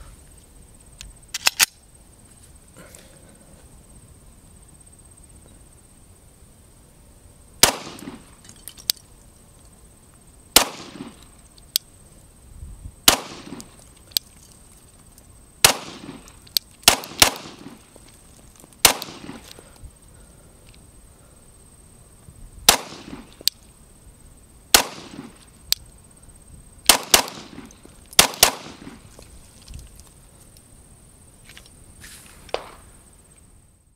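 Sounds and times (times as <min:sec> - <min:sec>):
pistol shots: 0:07.6 - 0:08.2, 0:10.6 - 0:11.2, 0:13.1 - 0:13.6, 0:15.6 - 0:16.2, 0:16.8 - 0:17.8, 0:18.8 - 0:19.4, 0:22.7 - 0:23.3, 0:24.7 - 0:25.3, 0:26.9 - 0:29.0
shot echo: 0:07.6 - 0:08.3, 0:10.6 - 0:11.2, 0:13.1 - 0:13.7, 0:15.6 - 0:17.8, 0:18.8 - 0:19.5, 0:22.7 - 0:23.4, 0:24.7 - 0:25.4, 0:26.9 - 0:29.0.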